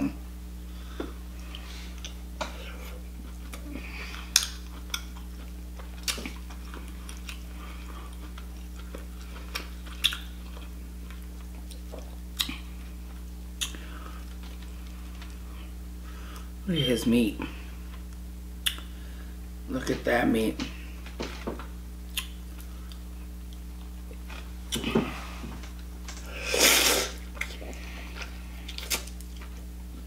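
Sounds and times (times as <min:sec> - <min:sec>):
steady low hum: 0:00.0 - 0:30.0
wet chewing: 0:02.8 - 0:15.7
lip smacks: 0:08.2 - 0:10.4, 0:13.6 - 0:14.5, 0:18.6 - 0:18.9, 0:22.1 - 0:23.6, 0:28.7 - 0:29.5.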